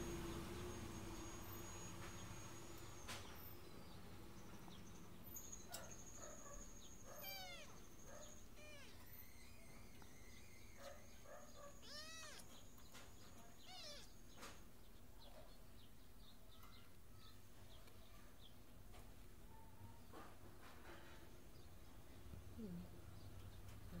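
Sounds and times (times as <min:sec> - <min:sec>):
kittens mewing: 0:07.0 - 0:12.7, 0:13.4 - 0:14.2.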